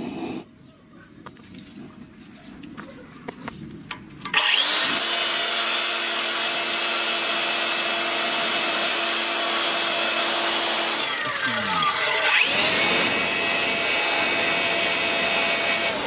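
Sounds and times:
blower whine and air rush: 0:04.2 - 0:16.0.

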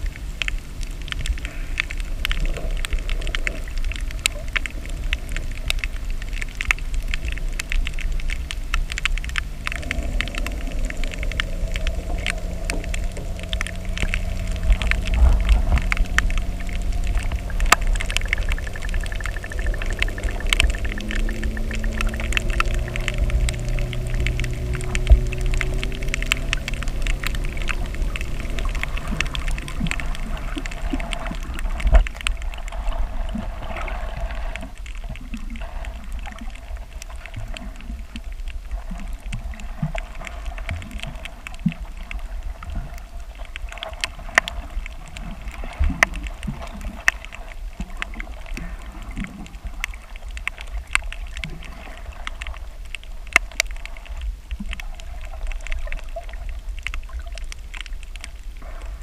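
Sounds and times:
constant hum: 0:00.0 - 0:59.0
low rumble of moving water: 0:00.0 - 0:59.0
sharp underwater clicks and crackles: 0:00.0 - 0:59.0.

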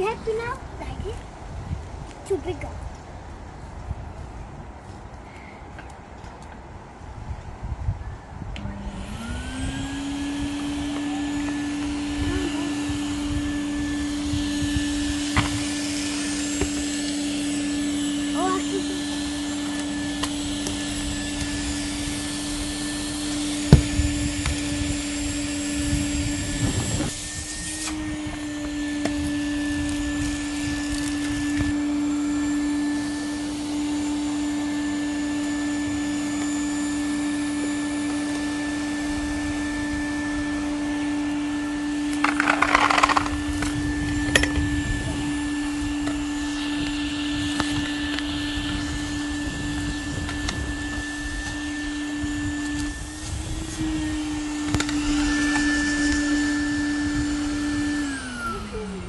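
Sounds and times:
vacuum cleaner humming: 0:08.6 - 0:59.0.

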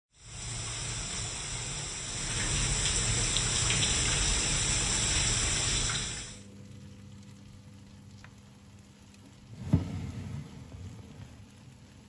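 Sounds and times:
tap running into a sink: 0:02.2 - 0:06.2.

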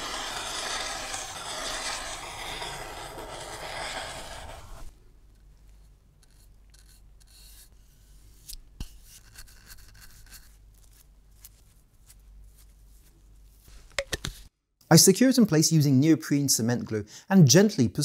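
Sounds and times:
bristle brush scratchy strokes: 0:00.0 - 0:04.9.

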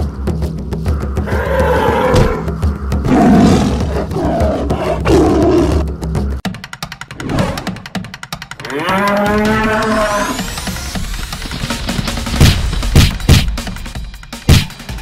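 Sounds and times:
low-pitched background music: 0:00.0 - 0:15.0
big cat roaring: 0:01.3 - 0:05.9.

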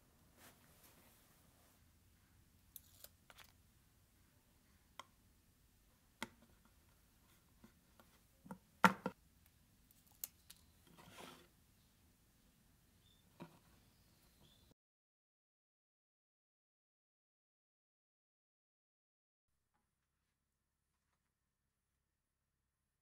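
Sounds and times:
small parts knocking on workbench: 0:08.5 - 0:09.2.

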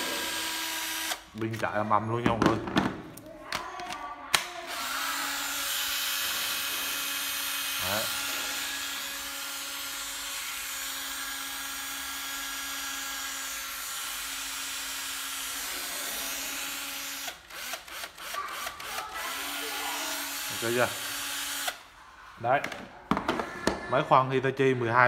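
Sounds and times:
cordless drill motor running: 0:00.0 - 0:01.3, 0:04.6 - 0:21.9.

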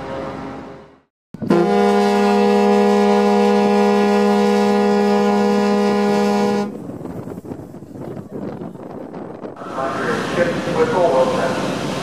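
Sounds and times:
ferry horn blast: 0:01.4 - 0:06.8.

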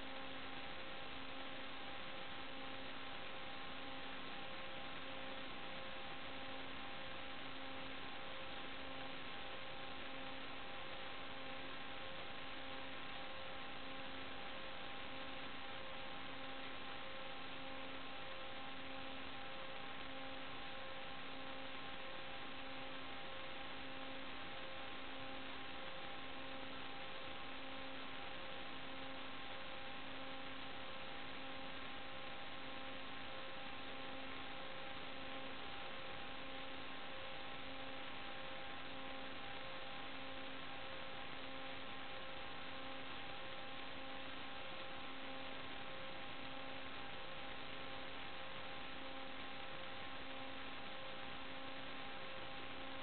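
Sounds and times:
electrical hum over hiss: 0:00.0 - 0:53.0.

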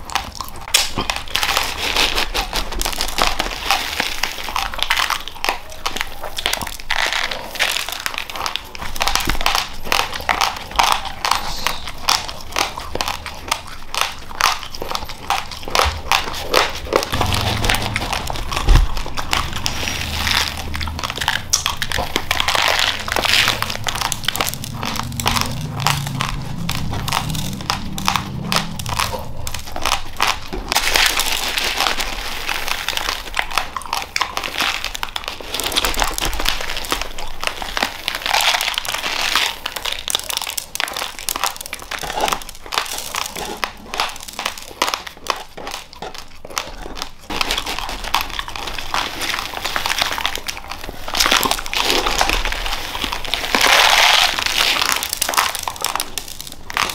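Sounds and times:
raw rice crunched between teeth: 0:00.0 - 0:56.9
dry grains pattering: 0:00.1 - 0:45.0, 0:47.3 - 0:56.9
plastic bag rustling: 0:14.4 - 0:45.2, 0:46.0 - 0:56.9.

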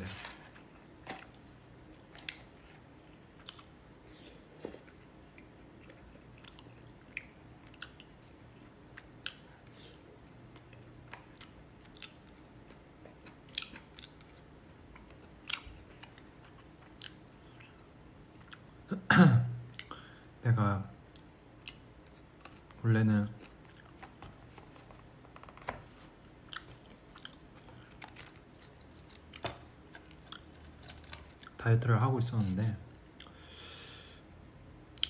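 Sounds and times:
person chewing and biting: 0:00.6 - 0:18.7, 0:23.4 - 0:24.8, 0:26.3 - 0:31.6.

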